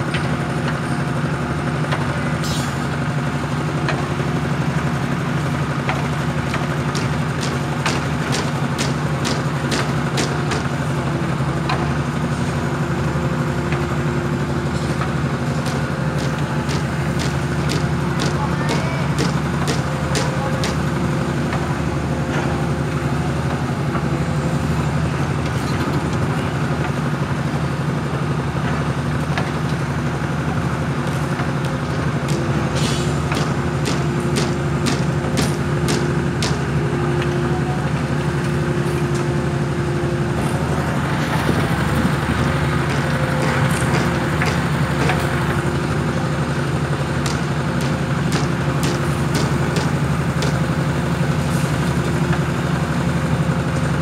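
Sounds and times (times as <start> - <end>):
diesel engine droning: 0.0 - 54.0
sharp clicks and knocks: 5.9 - 10.7, 15.6 - 20.8, 33.3 - 36.6, 42.8 - 45.9, 47.2 - 50.7.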